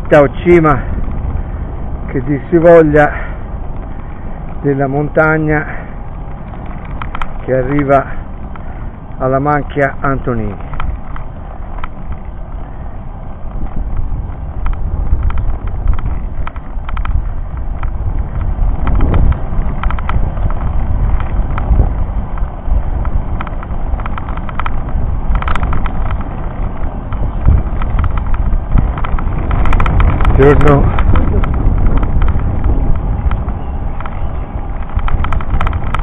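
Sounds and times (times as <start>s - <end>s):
road rumble: 0.0s - 36.0s
wind buffeting microphone: 0.0s - 36.0s
clicks and rattles: 6.3s - 8.7s, 9.6s - 12.4s, 13.4s - 36.0s.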